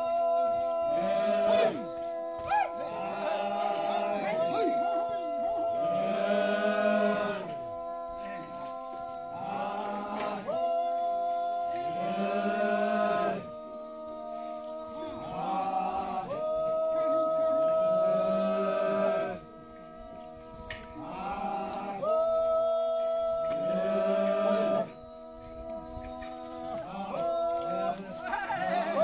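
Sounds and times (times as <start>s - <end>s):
voices chanting long phrases: 0.0s - 29.0s.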